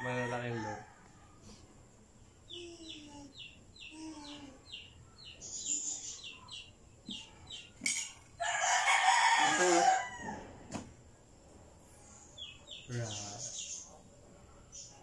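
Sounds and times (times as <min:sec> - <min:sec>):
birds chirping: 0:01.5 - 0:10.4, 0:11.8 - 0:15.0.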